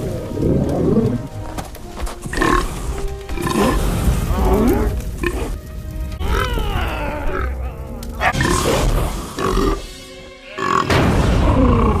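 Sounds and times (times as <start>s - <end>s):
background music: 0.0s - 12.0s
dragon growling and roaring: 6.2s - 9.8s, 10.5s - 12.0s.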